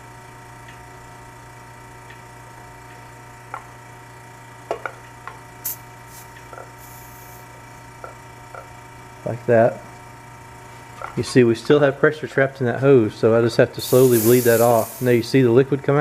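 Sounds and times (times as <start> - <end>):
steady low hum: 0.0 - 16.0
short high hiss of gas: 5.6 - 7.5, 13.8 - 15.4.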